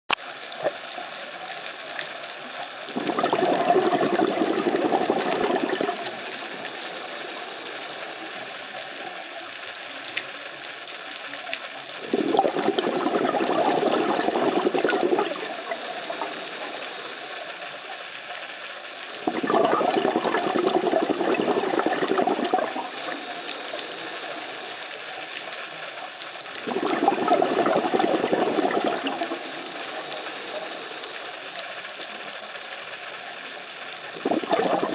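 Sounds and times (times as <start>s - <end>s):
exhaled bubbles bursting: 2.9s - 8.7s, 12.0s - 17.5s, 19.2s - 25.5s, 26.5s - 31.6s, 34.1s - 34.9s
hissing regulator inhalations: 3.0s - 8.8s, 12.0s - 17.5s, 26.7s - 31.4s.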